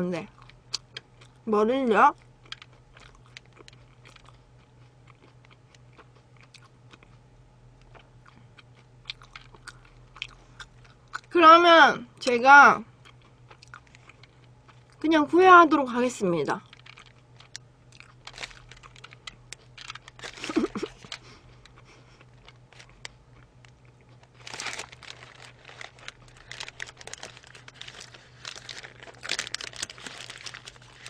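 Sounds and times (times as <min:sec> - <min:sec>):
paper wrapper crinkling: 0:16.6 - 0:17.2, 0:18.1 - 0:21.8, 0:24.1 - 0:31.0.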